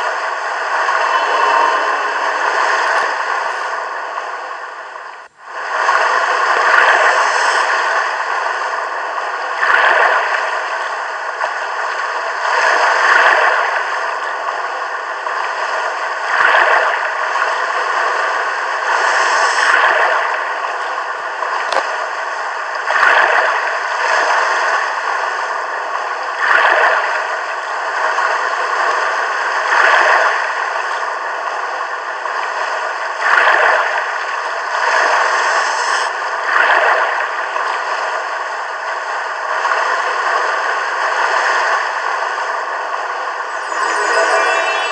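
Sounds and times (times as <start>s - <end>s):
sea waves rushing: 43.3s - 44.9s.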